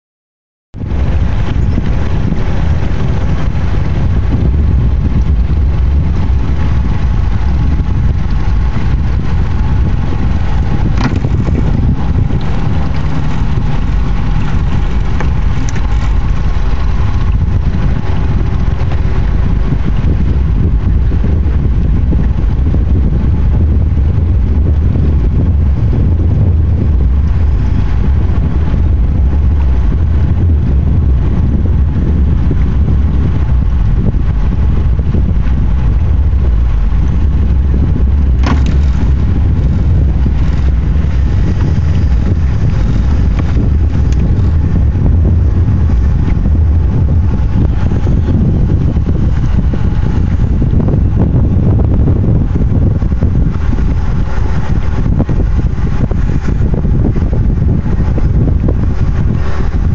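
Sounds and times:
diesel boat engine rumbling: 0:00.7 - 0:59.9.

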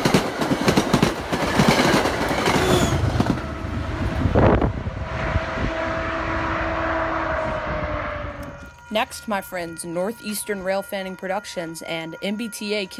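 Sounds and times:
train wheels clicking over rail joints: 0:00.0 - 0:03.4
train rumble: 0:00.0 - 0:12.9.

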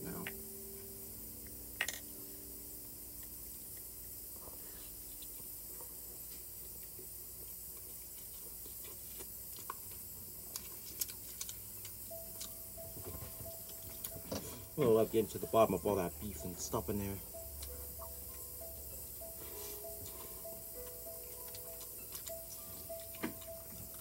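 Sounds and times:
steady background hiss: 0:00.0 - 0:24.0
man chewing food: 0:03.1 - 0:14.8, 0:17.2 - 0:24.0.

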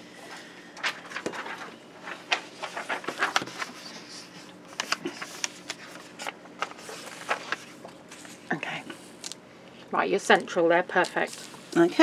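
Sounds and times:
paper rustling: 0:00.8 - 0:09.4.

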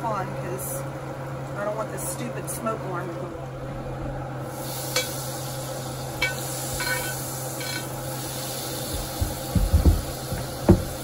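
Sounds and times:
butter sizzling in a skillet: 0:04.5 - 0:09.2
dull knocks: 0:08.9 - 0:11.0.

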